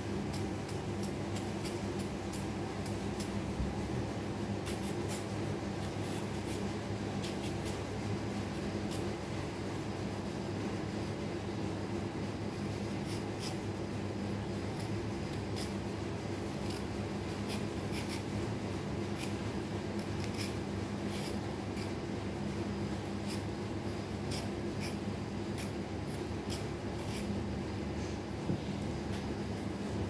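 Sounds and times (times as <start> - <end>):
peeler blade scraping potato: 0.1 - 3.4, 4.6 - 7.8, 8.5 - 9.2, 12.8 - 13.7, 14.7 - 18.4, 19.0 - 22.1, 23.0 - 27.5.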